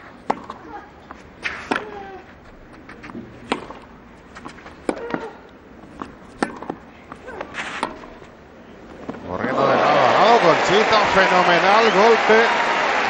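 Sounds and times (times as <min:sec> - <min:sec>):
tennis ball hit by racquet: 0:00.2 - 0:00.6, 0:01.4 - 0:02.0, 0:03.1 - 0:05.4, 0:06.0 - 0:08.2.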